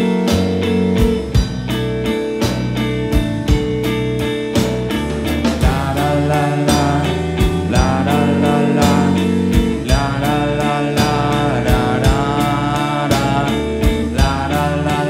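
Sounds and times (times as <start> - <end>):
bass guitar: 0.0 - 15.0
drum kit beat with cymbals: 0.0 - 15.0
electric guitar: 0.0 - 15.0
man singing long notes: 5.6 - 15.0.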